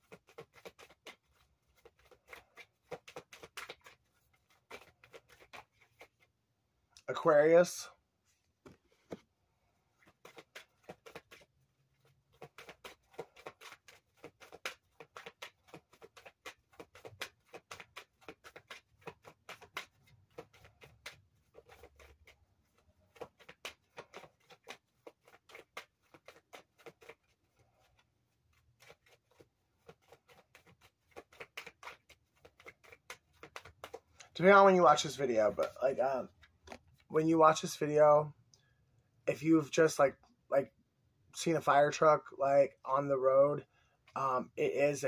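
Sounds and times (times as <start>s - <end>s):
playing cards shuffling: 0.0s - 6.3s, 10.0s - 37.1s.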